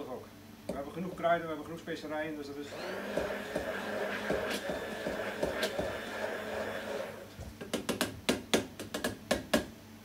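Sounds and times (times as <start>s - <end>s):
stick blender whirring: 2.6s - 7.5s.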